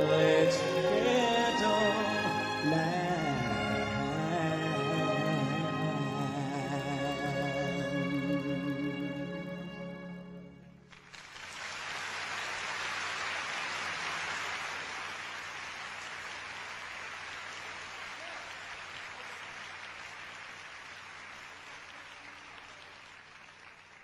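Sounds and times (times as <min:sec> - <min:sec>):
audience applauding: 0:10.9 - 0:24.0.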